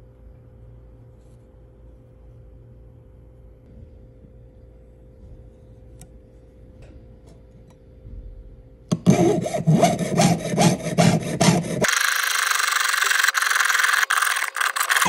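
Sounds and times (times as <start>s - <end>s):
saw cutting metal sheet: 8.9s - 15.0s.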